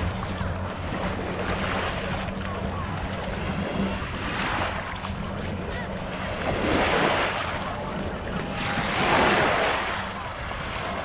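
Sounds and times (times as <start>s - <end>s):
low steady hum: 0.0s - 11.0s
small waves washing on sand: 0.0s - 11.0s.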